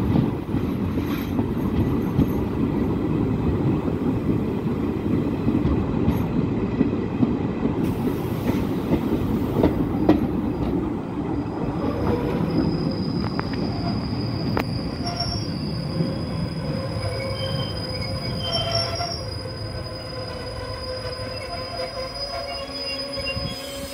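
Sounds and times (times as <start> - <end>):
train running-gear rumble: 0.0 - 23.9
train brakes squealing: 7.9 - 10.7, 11.8 - 23.9.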